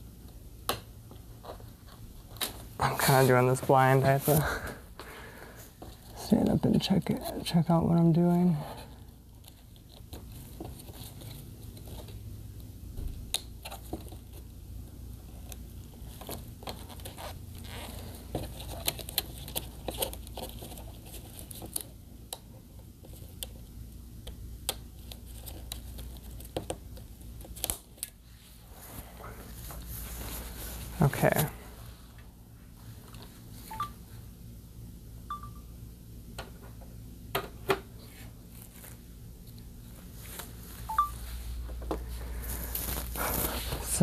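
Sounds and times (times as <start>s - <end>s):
steady low hum: 0.0s - 44.0s
hands clicking and rustling tape: 15.2s - 28.2s.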